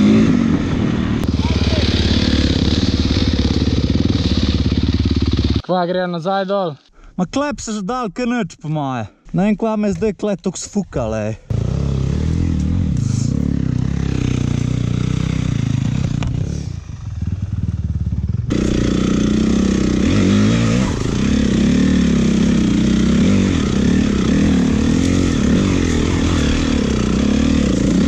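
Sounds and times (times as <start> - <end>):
dirt bike engine revving: 0.0 - 5.6, 11.5 - 28.0.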